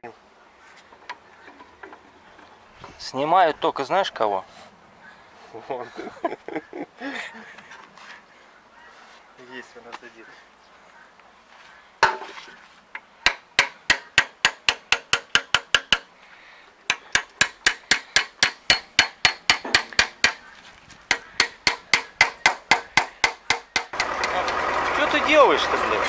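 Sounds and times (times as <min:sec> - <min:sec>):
hammer striking metal drift: 0:16.9 - 0:20.4.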